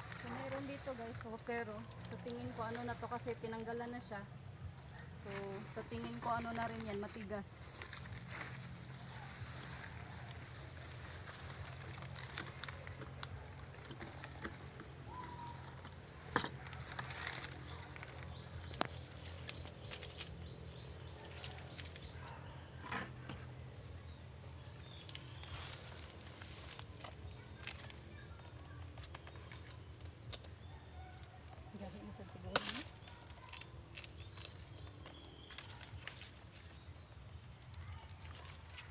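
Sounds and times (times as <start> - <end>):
dry palm fronds rustling: 0.0 - 22.4, 23.8 - 38.9
sharp snaps and clicks: 16.3 - 20.4.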